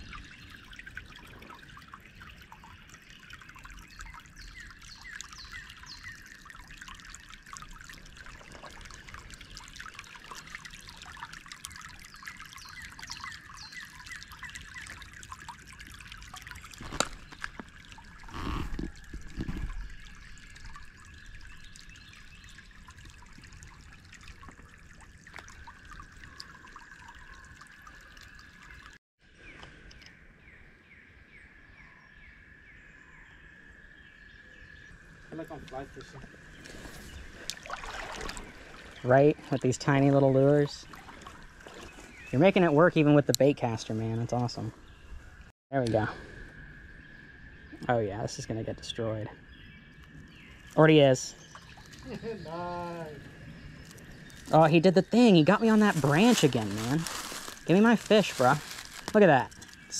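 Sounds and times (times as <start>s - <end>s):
creek water trickling: 0.0s - 59.9s.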